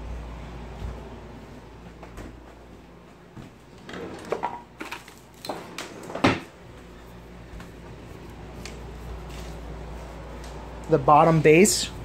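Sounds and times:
low hum: 0:00.0 - 0:04.0
household knocks and clatters: 0:03.8 - 0:06.5.

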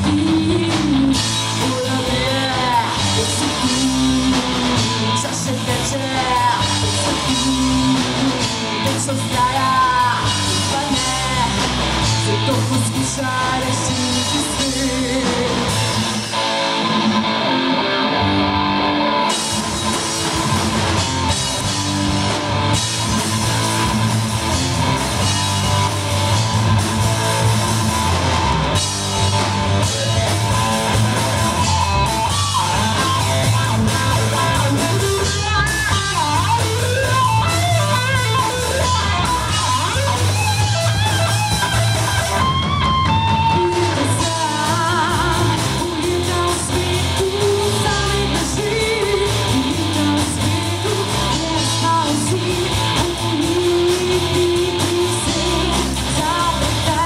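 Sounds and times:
woman singing: 0:00.0 - 0:15.8, 0:43.5 - 0:57.0
bass guitar: 0:00.0 - 0:57.0
drums: 0:00.0 - 0:57.0
electric guitar: 0:00.0 - 0:57.0.

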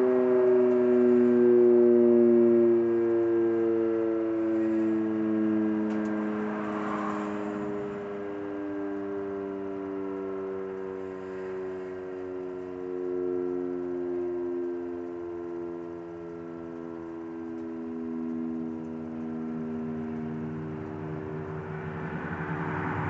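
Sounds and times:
fire siren wavering chord: 0:00.0 - 0:23.0
rushing noise: 0:21.1 - 0:23.0.

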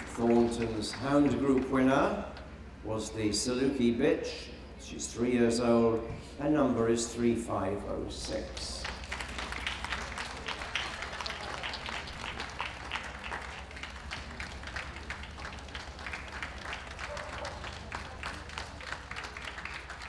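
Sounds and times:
audience applauding: 0:00.0 - 0:01.8, 0:08.6 - 0:20.0.

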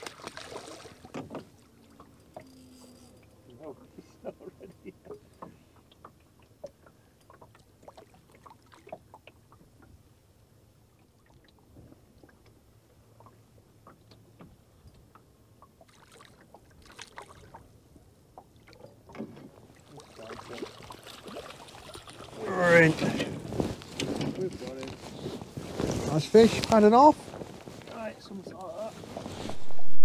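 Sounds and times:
water splashes: 0:00.0 - 0:02.6, 0:05.0 - 0:10.0, 0:15.1 - 0:23.8
small waves lapping against hull: 0:00.0 - 0:29.8.

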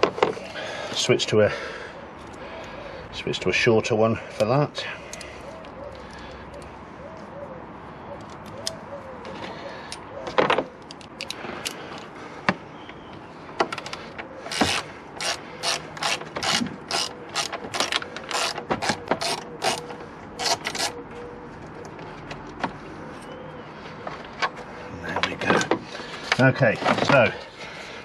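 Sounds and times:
hand ratchet clicking: 0:13.8 - 0:21.0.

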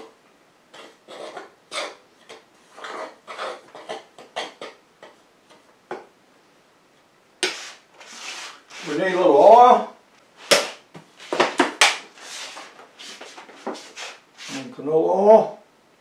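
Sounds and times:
cornmeal scratching in bowl: 0:00.7 - 0:04.8, 0:07.4 - 0:09.2, 0:12.1 - 0:14.7.

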